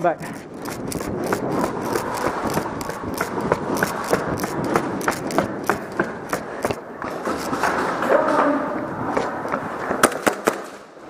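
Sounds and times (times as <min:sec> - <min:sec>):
running footsteps on hard floor: 0:00.3 - 0:08.2.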